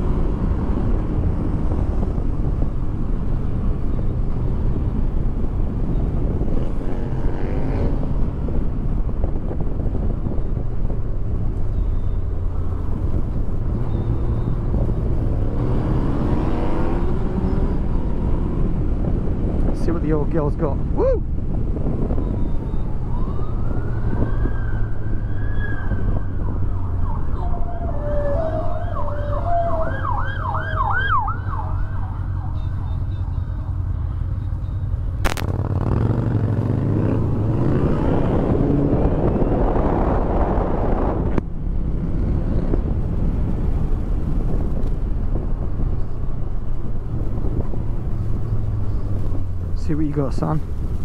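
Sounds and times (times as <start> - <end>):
wind and road rush: 0.0 - 51.0
emergency vehicle siren: 22.1 - 34.5.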